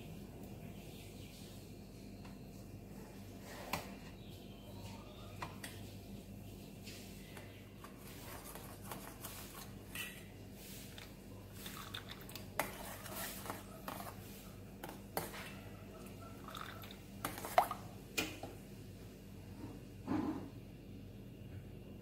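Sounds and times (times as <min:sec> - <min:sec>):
spoon stirring soft squishing: 0:06.6 - 0:18.0.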